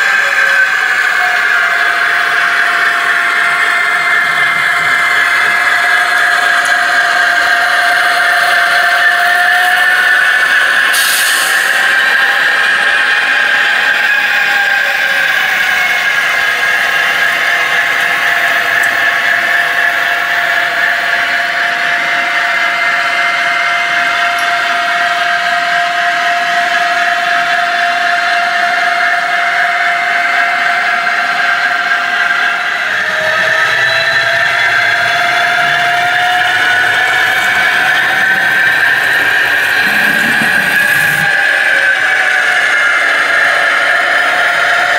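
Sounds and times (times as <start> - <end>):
model locomotive diesel drone: 0.0 - 44.9
whining tone: 0.0 - 44.9.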